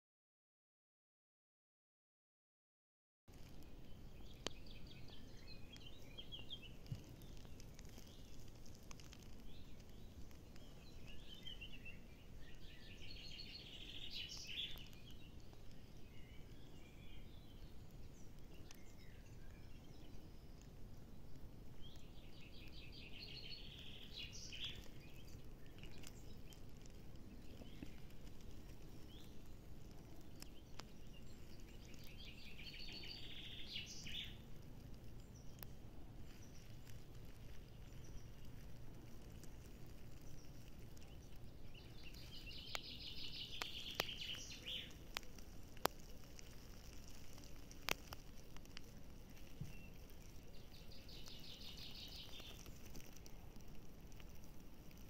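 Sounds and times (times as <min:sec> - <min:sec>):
songbird trilling: 0:04.1 - 0:20.6, 0:21.8 - 0:28.2, 0:30.4 - 0:34.4, 0:40.2 - 0:45.3, 0:49.6 - 0:52.8.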